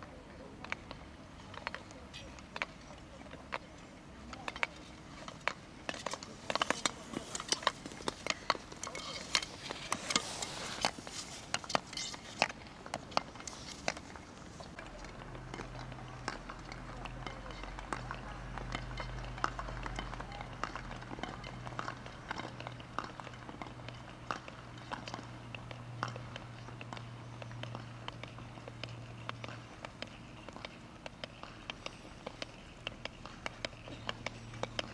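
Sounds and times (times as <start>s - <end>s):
ice skate blades scraping: 4.5s - 14.8s.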